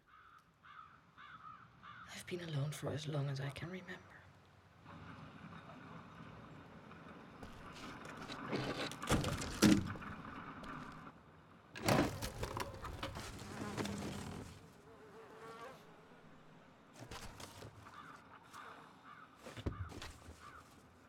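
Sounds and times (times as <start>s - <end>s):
loud rustles or knocks: 7.4s - 11.0s, 11.8s - 14.6s.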